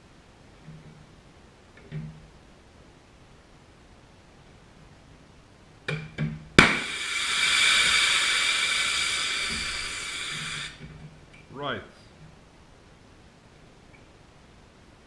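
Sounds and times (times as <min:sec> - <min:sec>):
air line bursting bang: 0:06.6 - 0:10.8
loud hiss of escaping air: 0:06.6 - 0:10.9.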